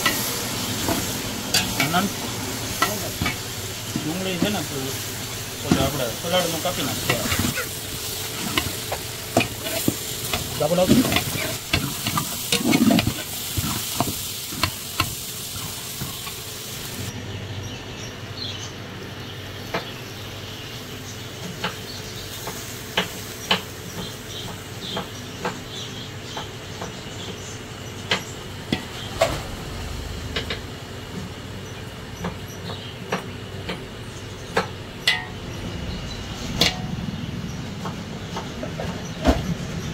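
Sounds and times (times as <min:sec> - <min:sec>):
metal spatula stirring and scraping: 0:07.0 - 0:16.4.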